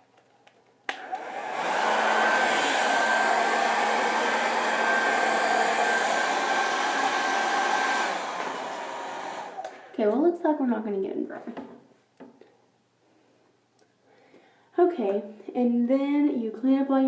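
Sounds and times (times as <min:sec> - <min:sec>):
hair dryer blowing: 0:00.9 - 0:10.0.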